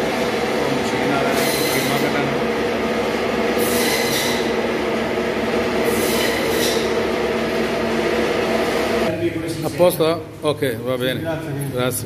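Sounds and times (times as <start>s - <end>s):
meat grinding machine droning: 0.0s - 9.1s.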